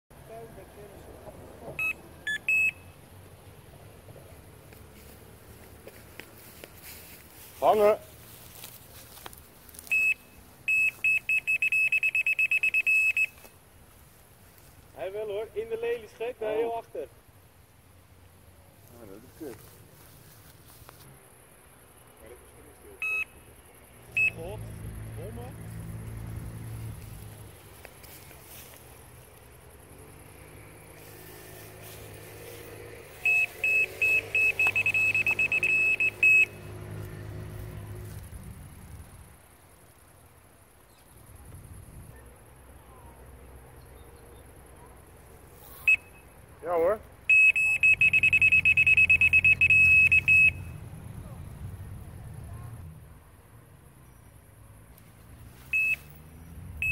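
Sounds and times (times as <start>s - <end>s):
electronic bite alarm beeping: 1.8s - 3.0s, 9.9s - 13.5s, 23.0s - 23.4s, 24.1s - 24.6s, 33.1s - 36.8s, 45.7s - 46.3s, 47.3s - 50.8s, 55.8s - 56.1s.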